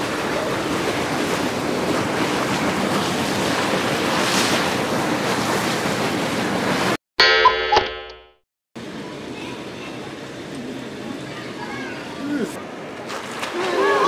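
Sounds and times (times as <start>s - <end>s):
boiling hot spring hissing: 8.8s - 12.6s.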